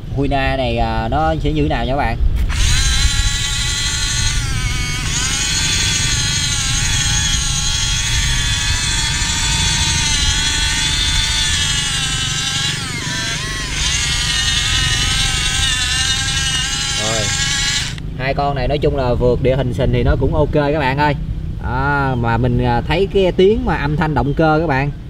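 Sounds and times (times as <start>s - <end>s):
electric motors whining: 2.5s - 18.0s.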